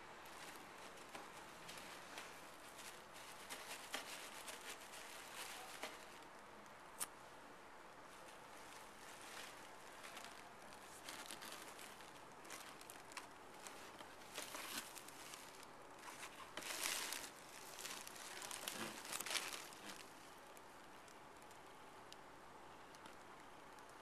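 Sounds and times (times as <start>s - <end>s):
cat rustling in cardboard box: 0.3s - 6.2s, 8.2s - 20.2s.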